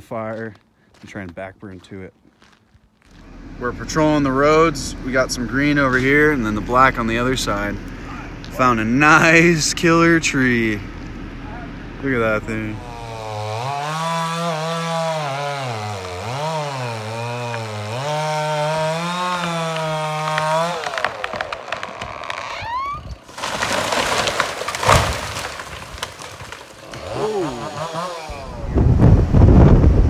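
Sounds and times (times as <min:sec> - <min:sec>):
chainsaw running at high revs: 0:12.6 - 0:22.4, 0:26.8 - 0:28.6
wood cracking: 0:12.8 - 0:28.3
tree falling with crash: 0:13.4 - 0:28.3.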